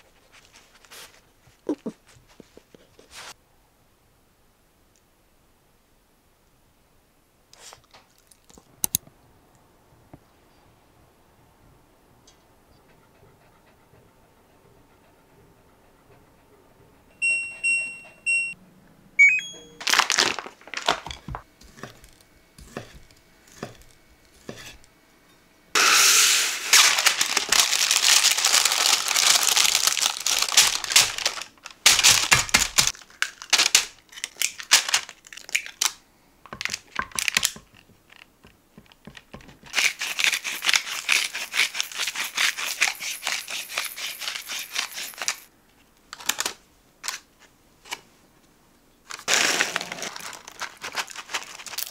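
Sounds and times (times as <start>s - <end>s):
short electronic beep: 19.2s - 19.8s
dense crinkling or scraping: 19.8s - 24.9s, 26.6s - 35.8s, 49.1s - 51.9s.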